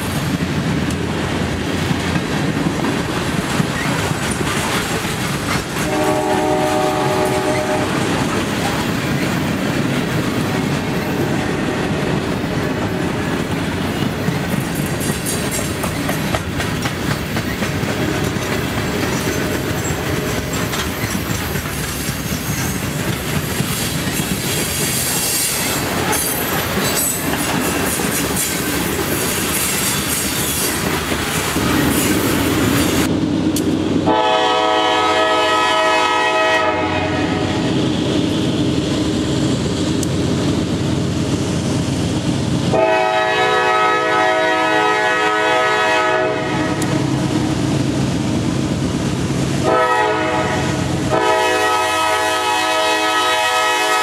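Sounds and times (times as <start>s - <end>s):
freight train wheels clacking: 0.0s - 54.0s
locomotive air horn: 5.8s - 8.2s, 34.1s - 37.7s, 42.7s - 46.9s, 49.6s - 54.0s.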